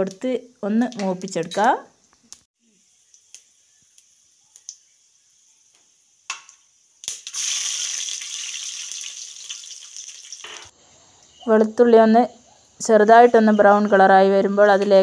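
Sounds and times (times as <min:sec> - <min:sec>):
oil sizzling in a pot: 0:00.0 - 0:11.4
garlic frying hiss: 0:00.0 - 0:15.0.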